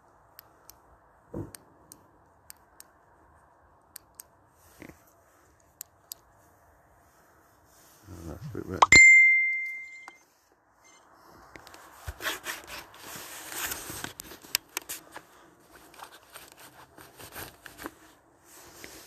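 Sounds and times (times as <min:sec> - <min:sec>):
short ringing ding: 0:08.8 - 0:10.2.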